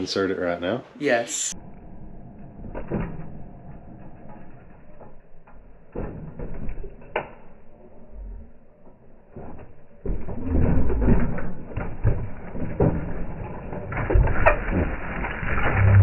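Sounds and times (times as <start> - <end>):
bike knocking and rattling: 2.8 - 7.8, 8.7 - 15.4.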